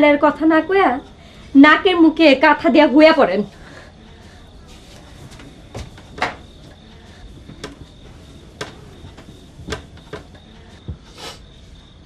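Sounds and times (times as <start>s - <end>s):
crickets chirring: 0.0s - 12.0s
bed creaks and soft knocks: 4.8s - 11.0s.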